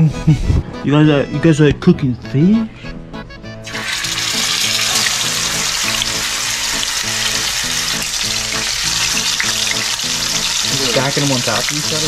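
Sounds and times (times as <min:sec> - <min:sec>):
fish sizzling in hot oil: 0:03.6 - 0:12.0.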